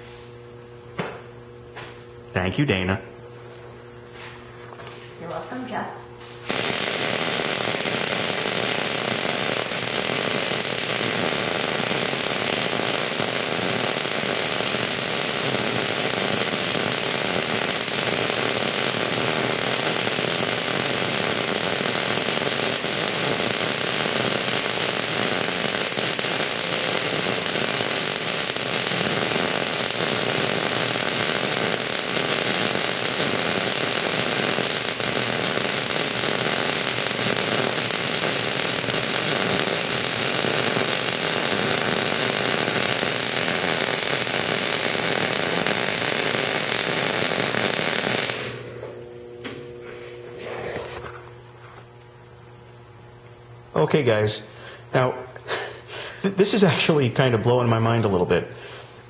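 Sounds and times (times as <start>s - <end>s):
welding arc sizzling: 5.2s - 51.9s.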